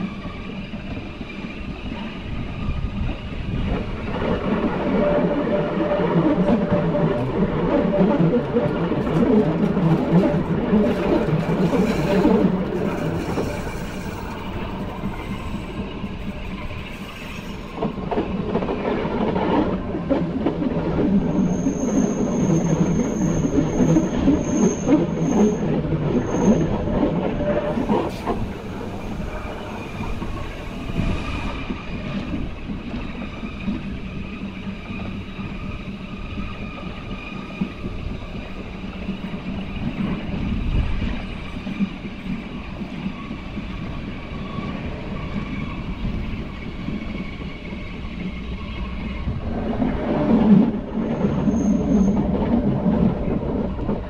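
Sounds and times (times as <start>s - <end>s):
train rumbling on track: 0.0s - 54.0s
high wheel squeal: 10.9s - 17.8s, 21.2s - 40.1s, 50.9s - 52.3s.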